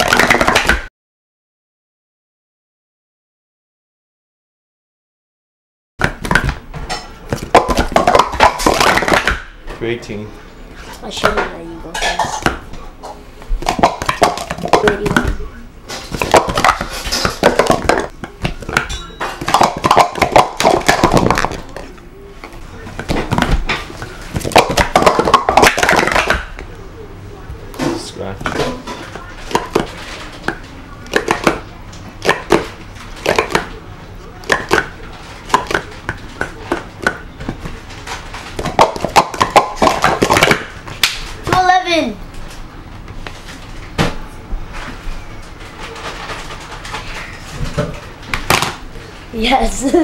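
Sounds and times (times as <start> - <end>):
plastic cups clacking: 0.0 - 0.8, 7.3 - 9.4, 13.6 - 22.0, 22.9 - 26.7, 28.4 - 33.8, 34.4 - 41.3.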